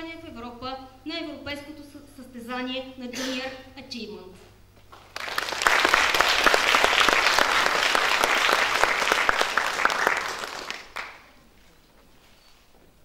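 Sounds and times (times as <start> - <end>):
audience applauding: 5.0 - 11.4.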